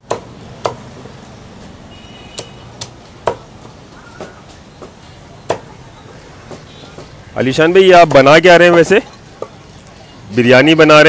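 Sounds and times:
cleaver chopping on wooden block: 0:00.0 - 0:00.9, 0:02.4 - 0:05.7.

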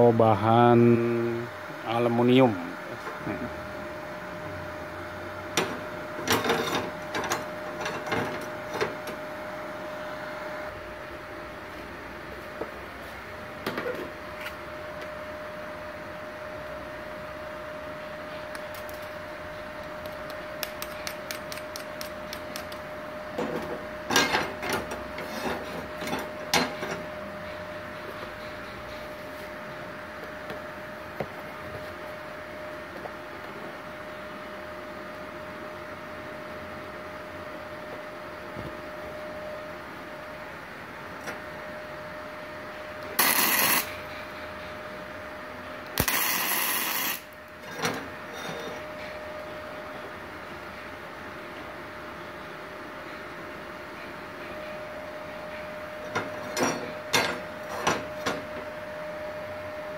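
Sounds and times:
welding machine whine: 0:00.0 - 0:50.1
welding arc crackling: 0:18.5 - 0:19.2, 0:19.8 - 0:22.9, 0:43.0 - 0:44.0, 0:45.9 - 0:47.4.

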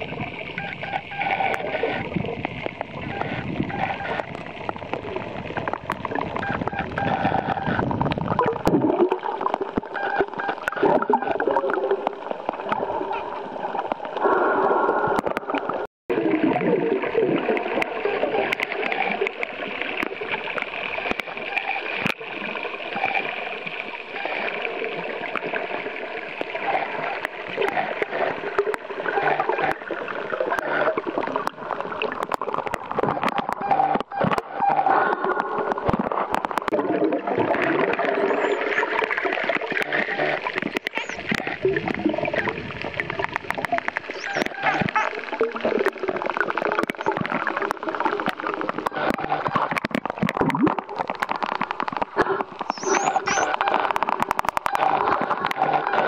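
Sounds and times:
underwater water noise: 0:00.0 - 0:56.0
dolphin whistles: 0:00.6 - 0:01.8, 0:40.1 - 0:41.3, 0:44.1 - 0:45.2, 0:52.7 - 0:53.6
dolphin clicks: 0:43.2 - 0:46.0, 0:48.2 - 0:56.0.

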